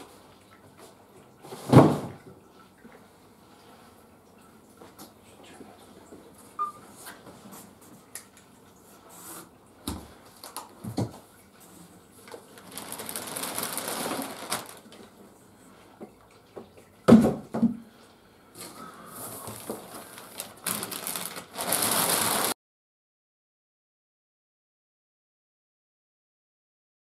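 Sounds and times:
plastic bag rustling and crinkling: 12.3s - 15.0s, 18.6s - 22.6s.

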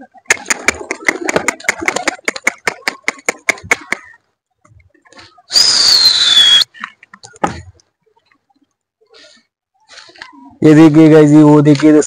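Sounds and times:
pigeon wings clapping: 0.2s - 4.1s
person whistling loudly: 5.5s - 6.7s.

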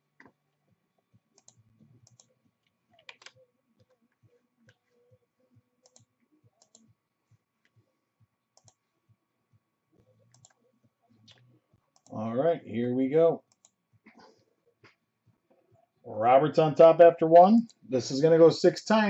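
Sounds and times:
mouse and keyboard clicks: 1.4s - 2.3s, 3.0s - 4.0s, 8.6s - 8.8s.

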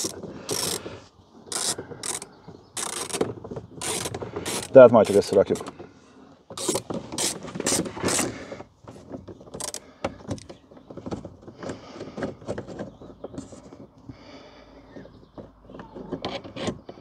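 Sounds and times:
ratchet clicking: 0.0s - 0.8s, 1.5s - 5.6s, 6.6s - 8.3s
small metal rattles: 0.0s - 6.0s.

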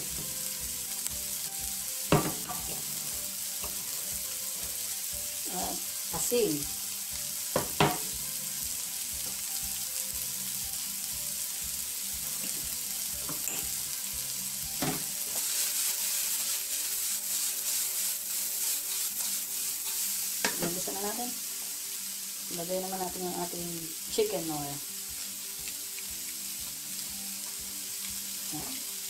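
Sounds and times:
vegetables sizzling in hot oil: 0.0s - 29.0s
knock on pan: 2.1s - 2.8s, 7.6s - 8.2s, 14.8s - 15.1s.

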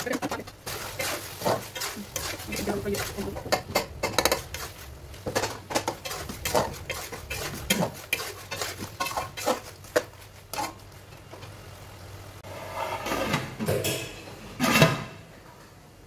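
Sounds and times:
metal spatula scraping a pot: 0.0s - 4.8s, 5.4s - 10.8s, 12.4s - 14.0s.

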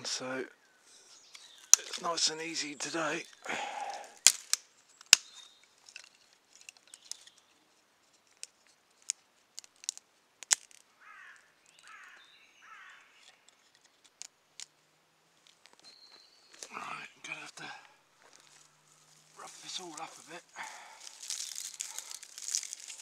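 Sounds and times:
sticks scraping and rustling: 0.9s - 12.2s, 13.1s - 14.8s, 16.5s - 23.0s
dry twigs snapping: 1.2s - 2.2s, 3.1s - 14.8s, 18.2s - 23.0s.

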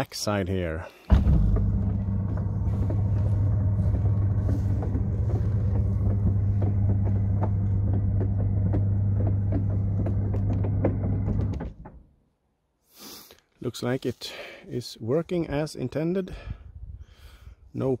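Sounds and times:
electric motor humming: 1.1s - 11.7s
rolling gear clicks and knocks: 1.1s - 12.0s.

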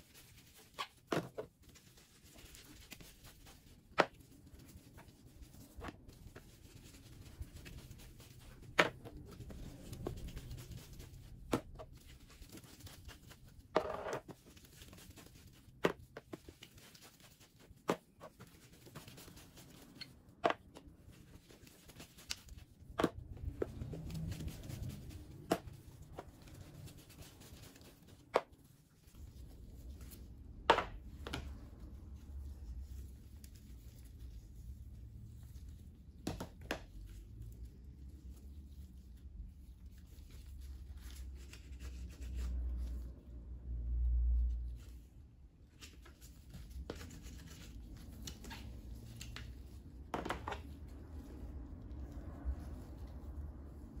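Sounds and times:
cloth rubbing and handling noise: 0.0s - 36.2s.

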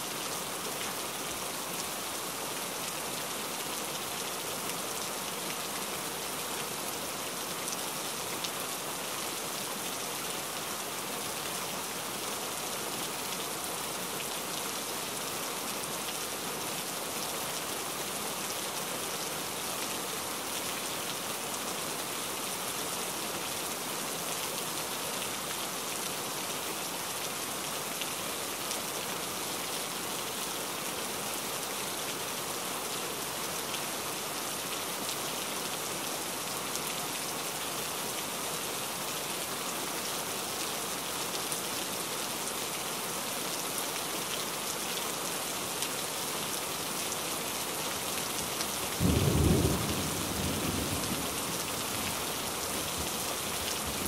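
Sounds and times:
steady rain: 0.0s - 54.0s
low rumble of thunder: 49.0s - 51.5s.

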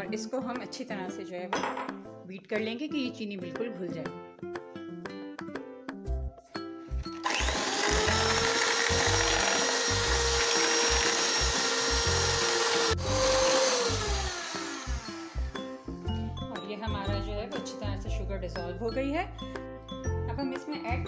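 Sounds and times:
electric hand mixer whine: 7.2s - 16.2s.

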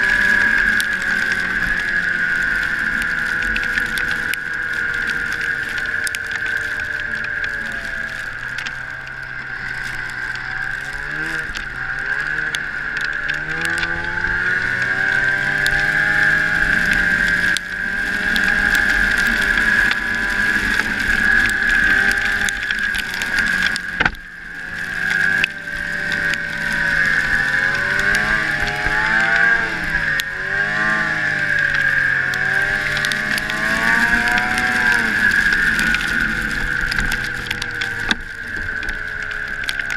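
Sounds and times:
snowmobile engine accelerating: 0.0s - 39.9s.

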